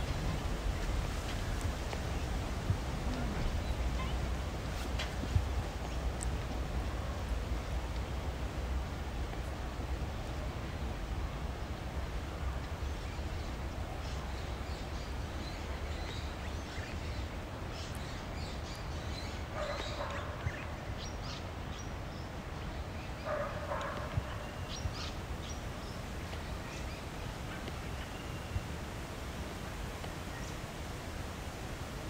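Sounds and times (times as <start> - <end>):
low wind rumble: 0.0 - 32.0.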